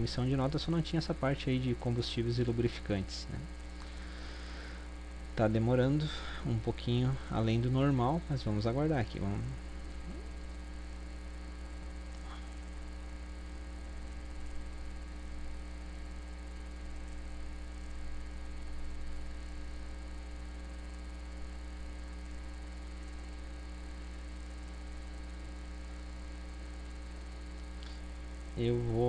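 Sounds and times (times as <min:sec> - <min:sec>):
electrical mains hum: 0:00.0 - 0:29.0.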